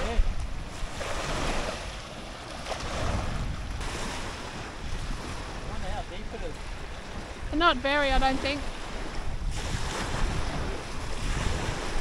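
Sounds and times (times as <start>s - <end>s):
wind blowing across microphone: 0.0s - 12.0s.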